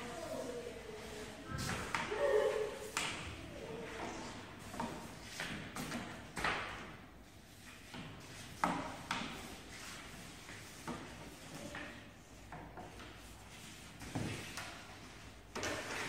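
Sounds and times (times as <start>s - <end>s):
footsteps: 0.1s - 5.4s
cane scraping and tapping paper: 3.9s - 16.0s.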